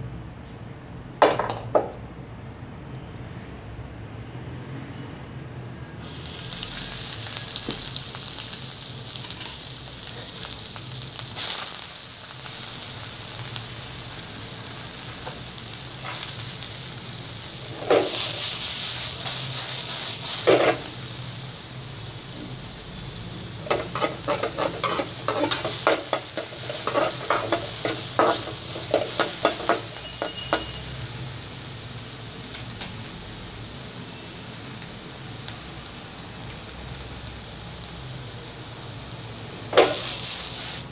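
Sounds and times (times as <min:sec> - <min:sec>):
vegetables sizzling in a wok: 0:06.0 - 0:40.9
stirring strokes scraping wok: 0:23.6 - 0:30.8.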